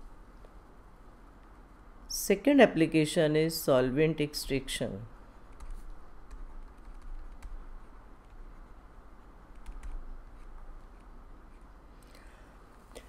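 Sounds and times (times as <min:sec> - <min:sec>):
low steady hum: 0:00.0 - 0:13.0
pen tapping and scratching tablet: 0:06.4 - 0:11.7.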